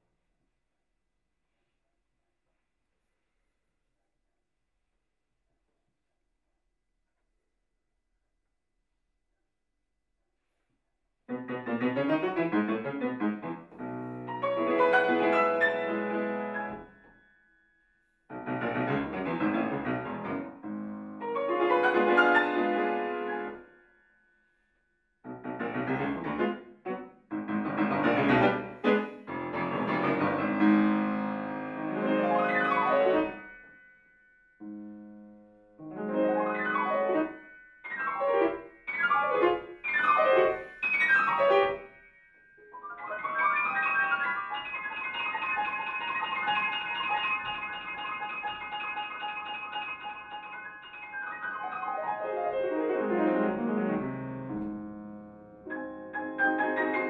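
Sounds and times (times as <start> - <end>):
solo classical piano: 11.3 - 17.3, 18.3 - 23.6, 25.2 - 42.0, 42.6 - 57.0.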